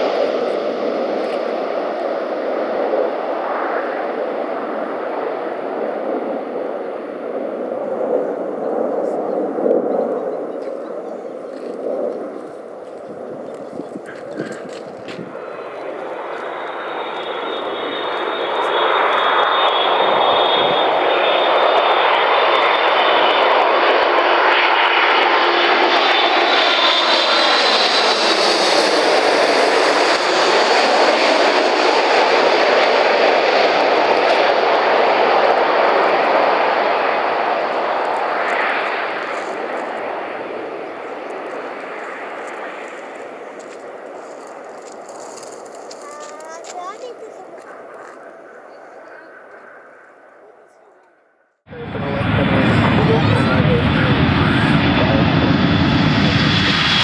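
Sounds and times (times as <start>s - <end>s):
jet airliner passing overhead: 0.0s - 57.0s
high jet whine sliding down: 11.5s - 46.4s.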